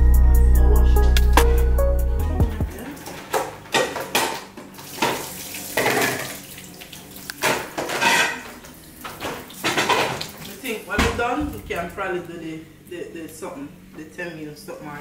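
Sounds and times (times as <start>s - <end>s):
water sloshing and splashing: 2.8s - 11.8s
metal bowl clattering: 2.9s - 6.4s, 7.4s - 11.8s.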